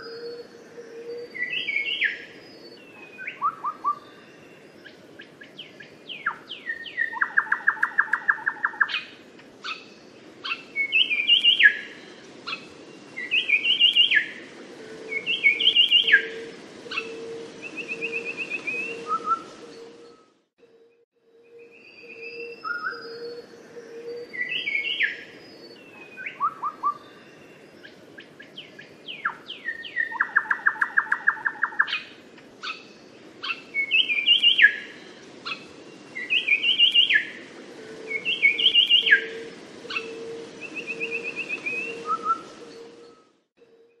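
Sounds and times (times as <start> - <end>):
bird singing whistled phrases: 15.1 - 19.5, 36.2 - 37.3, 38.1 - 44.0.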